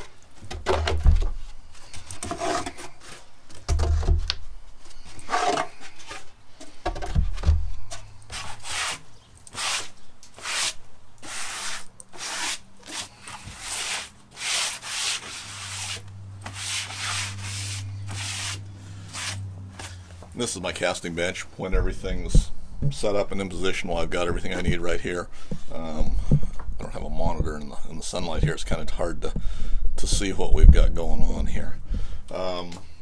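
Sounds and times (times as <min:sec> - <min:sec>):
dull thumps: 0:06.6 - 0:08.1, 0:21.7 - 0:23.2
brush sweeping wooden bench: 0:07.8 - 0:20.0.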